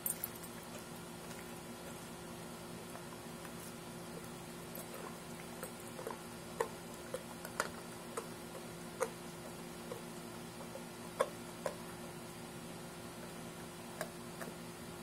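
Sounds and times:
steady low hum: 0:00.0 - 0:15.0
dog teeth crunching fish: 0:02.8 - 0:12.0.

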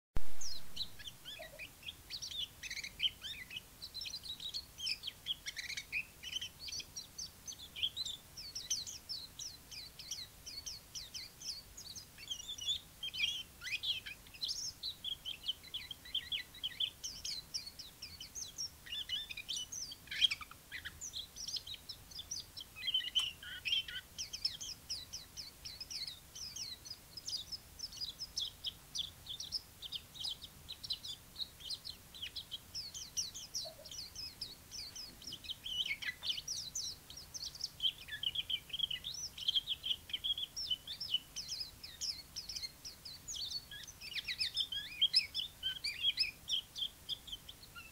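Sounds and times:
bird twittering song: 0:00.2 - 0:47.9.

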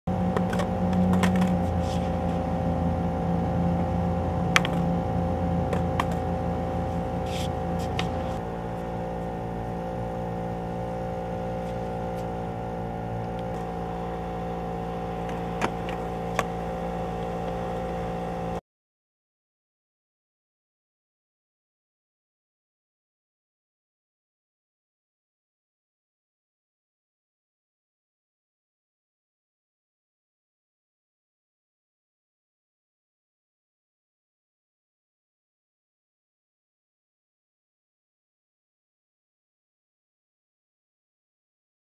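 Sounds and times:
steady mechanical hum: 0:00.1 - 0:18.6.

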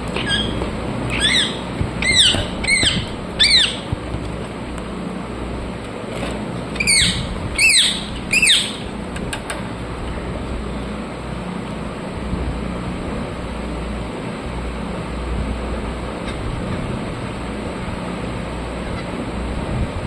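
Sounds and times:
steady low hum: 0:00.0 - 0:20.0
parrots squawking: 0:00.1 - 0:04.0, 0:06.8 - 0:08.9.

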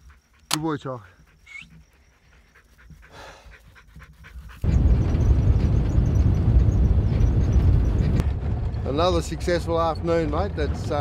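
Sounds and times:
dog panting: 0:00.0 - 0:06.4
vehicle driving on dirt track: 0:04.6 - 0:11.0.

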